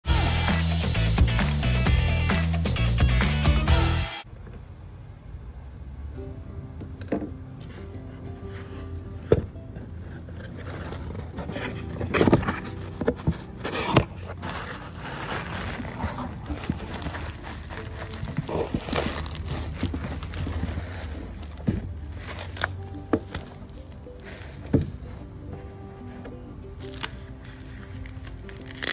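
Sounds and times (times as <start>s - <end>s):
bubble wrap crinkling: 10.0s - 25.4s, 26.8s - 28.9s.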